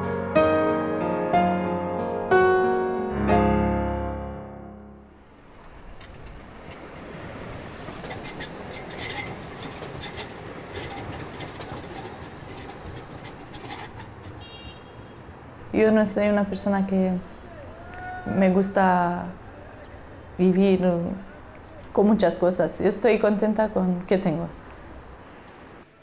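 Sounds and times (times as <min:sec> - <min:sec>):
soft piano music: 0:00.0 - 0:05.4
tram running on tracks: 0:05.4 - 0:14.6, 0:15.3 - 0:26.0.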